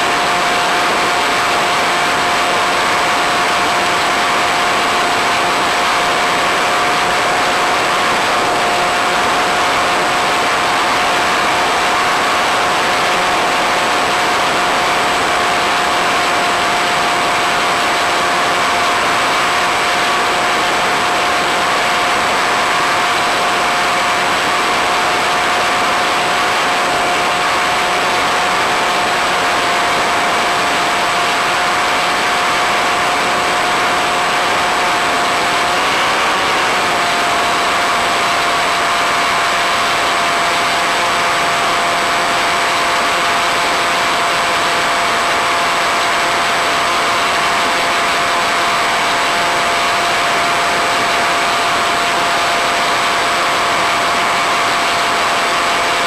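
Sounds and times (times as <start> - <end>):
electric motor whine: 0.0 - 56.0
propeller air rush: 0.0 - 56.0.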